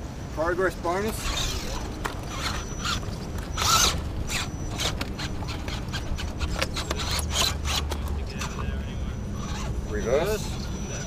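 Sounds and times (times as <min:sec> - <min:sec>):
faint high motor whine: 0:00.0 - 0:11.0
tyres scraping on rock: 0:01.0 - 0:08.7.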